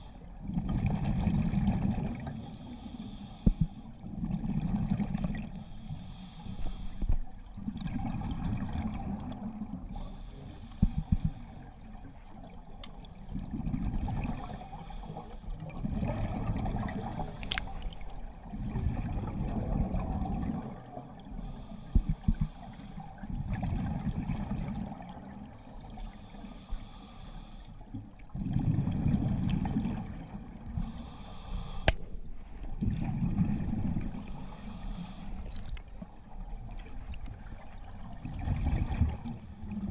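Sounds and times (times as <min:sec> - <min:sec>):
regulator inhale hiss: 0:00.0 - 0:00.3, 0:02.2 - 0:04.0, 0:05.5 - 0:07.2, 0:09.9 - 0:11.8, 0:14.4 - 0:15.6, 0:17.0 - 0:18.1, 0:21.3 - 0:23.2, 0:25.8 - 0:27.8, 0:30.8 - 0:32.2, 0:34.0 - 0:35.6.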